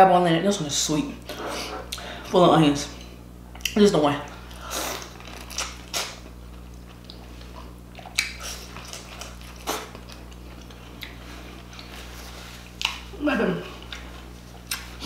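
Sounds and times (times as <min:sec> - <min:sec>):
steady low hum: 0:00.0 - 0:15.0
person chewing: 0:03.6 - 0:13.1, 0:13.8 - 0:15.0
wet bites and mouth smacks: 0:05.0 - 0:06.3, 0:08.0 - 0:11.2, 0:12.7 - 0:13.0.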